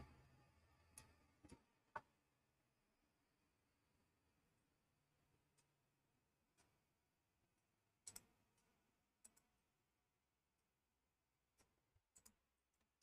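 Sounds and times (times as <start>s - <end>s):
faint clicks: 8.0s - 9.5s, 11.5s - 12.9s.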